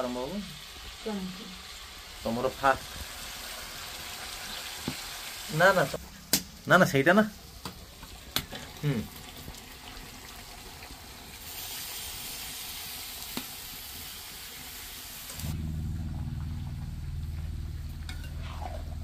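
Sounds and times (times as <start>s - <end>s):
food sizzling in hot oil: 0.0s - 15.6s
low steady hum: 15.3s - 19.0s.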